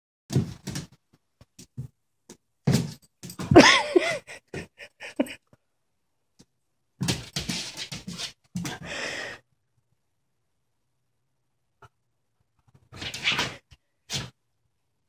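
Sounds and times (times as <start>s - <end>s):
dog paws thumping and scratching: 0.3s - 1.9s, 2.6s - 3.8s, 7.0s - 8.8s.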